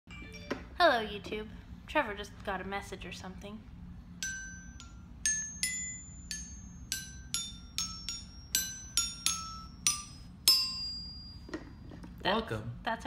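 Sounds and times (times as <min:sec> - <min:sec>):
toy xylophone notes: 0:04.2 - 0:11.4.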